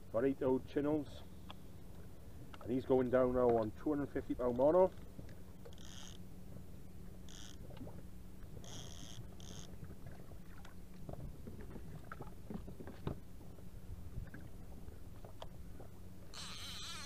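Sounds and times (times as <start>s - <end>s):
wind and water rumble: 0.0s - 17.0s.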